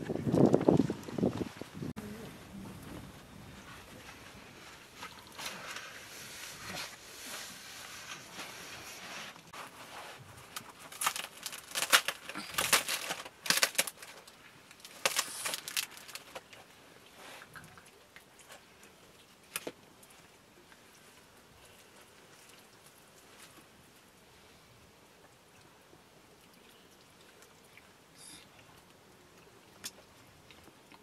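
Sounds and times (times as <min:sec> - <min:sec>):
crackling and rustling: 0:00.0 - 0:24.2.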